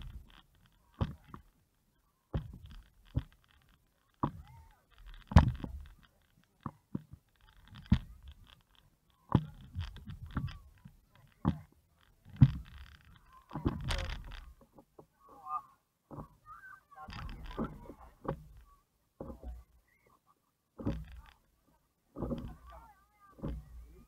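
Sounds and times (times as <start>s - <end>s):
dull thumps on paddleboard: 5.3s - 5.8s, 22.2s - 22.7s, 23.4s - 23.8s.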